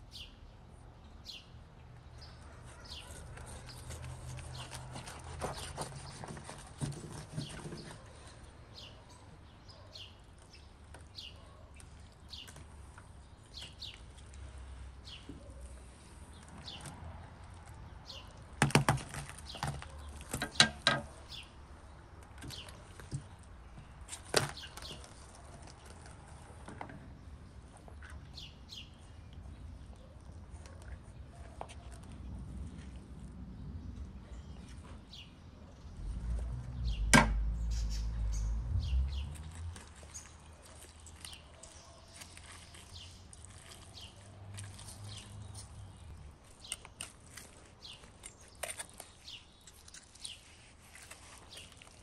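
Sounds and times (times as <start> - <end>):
bird chirping: 0.0 - 15.8, 34.2 - 47.1.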